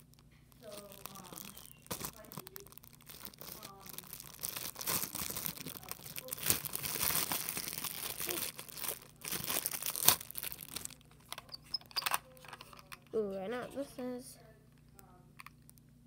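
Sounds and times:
plastic packaging crinkling and tearing: 0.0s - 12.5s.

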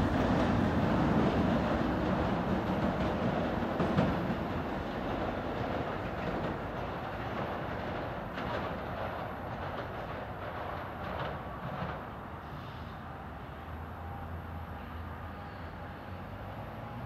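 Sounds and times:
wheel clicks over rail joints: 0.0s - 12.2s
train rumbling on track: 0.0s - 17.0s.

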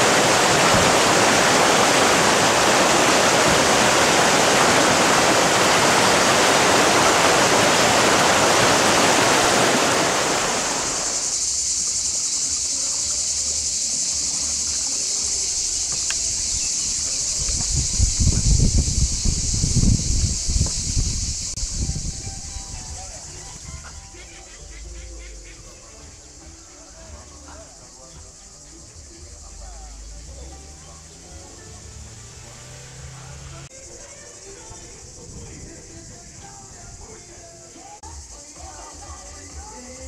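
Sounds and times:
river rushing over rocks: 0.0s - 11.4s
faint high hiss: 0.0s - 23.8s.

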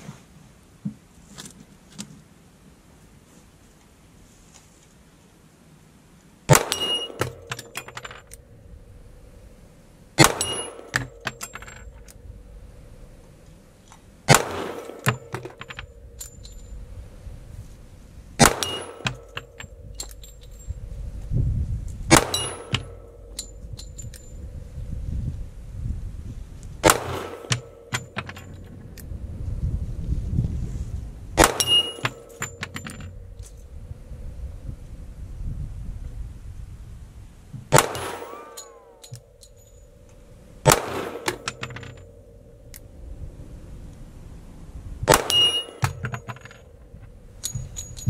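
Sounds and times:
pistol shots: 6.5s - 7.8s, 10.2s - 11.4s, 14.3s - 15.7s, 18.4s - 19.6s, 22.1s - 23.5s, 26.8s - 28.1s, 31.4s - 32.6s, 37.7s - 39.3s, 40.6s - 42.2s, 45.1s - 46.2s.

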